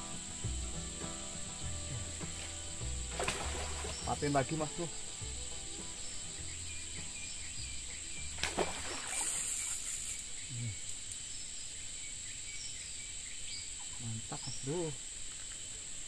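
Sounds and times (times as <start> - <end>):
brief hiss: 0.0 - 7.6, 8.4 - 10.4
high-pitched insect drone: 0.0 - 15.2
faint bird chirps: 0.0 - 15.7.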